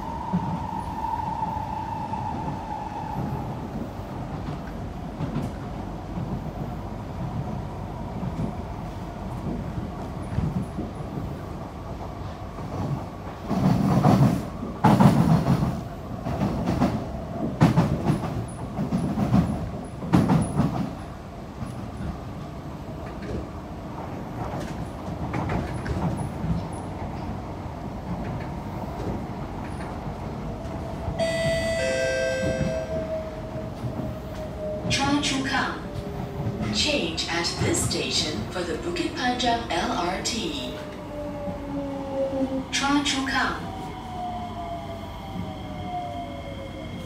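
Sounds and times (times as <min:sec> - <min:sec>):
announcement chime: 0:31.2 - 0:32.9.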